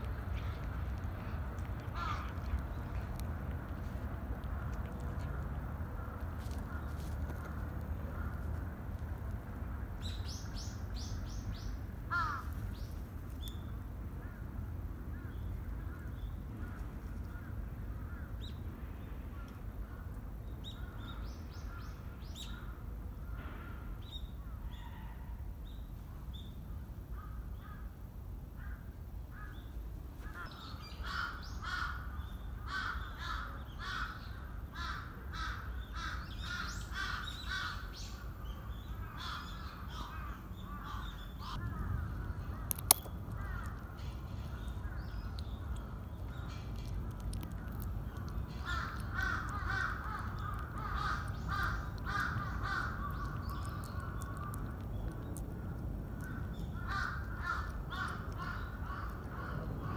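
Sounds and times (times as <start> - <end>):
steady low rumble: 0.0 - 24.7, 25.4 - 59.9
birds chirping and calling: 30.3 - 59.9.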